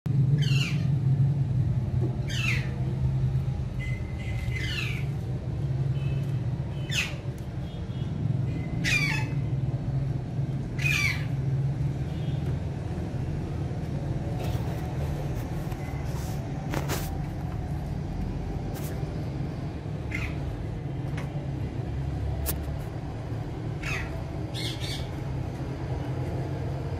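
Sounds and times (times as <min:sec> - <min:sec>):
parakeet calling: 0:00.4 - 0:01.0, 0:02.2 - 0:02.8, 0:03.8 - 0:05.2, 0:06.7 - 0:07.3, 0:08.6 - 0:09.5, 0:10.7 - 0:11.4, 0:20.0 - 0:20.5, 0:23.8 - 0:25.2.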